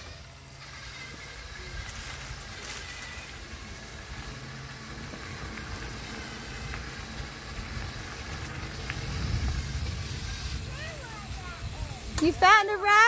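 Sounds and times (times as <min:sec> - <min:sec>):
wind rumble on microphone: 0:03.5 - 0:12.7.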